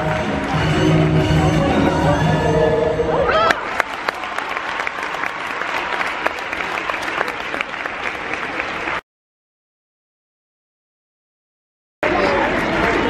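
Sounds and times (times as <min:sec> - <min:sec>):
audience applauding: 0:00.0 - 0:02.1, 0:03.3 - 0:09.0, 0:12.0 - 0:13.0.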